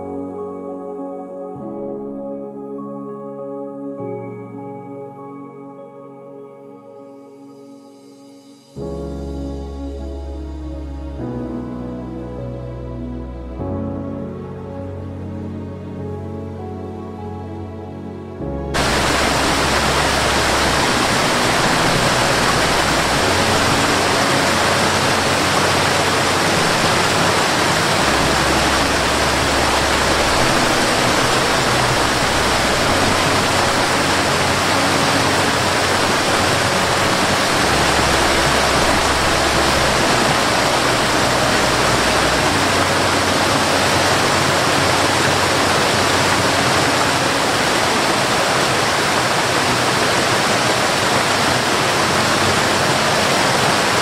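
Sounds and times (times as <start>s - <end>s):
soft low sustained music: 0.0s - 54.0s
water rushing over rocks: 18.7s - 54.0s.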